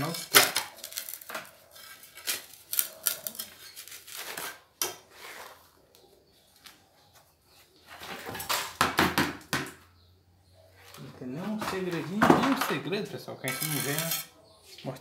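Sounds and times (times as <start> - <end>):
trowel scraping on mortar: 0.0 - 5.7, 13.4 - 14.4.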